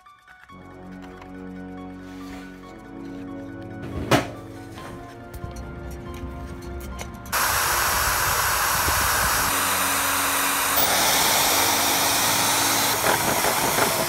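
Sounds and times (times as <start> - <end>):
electric drill boring wood: 7.3 - 14.0.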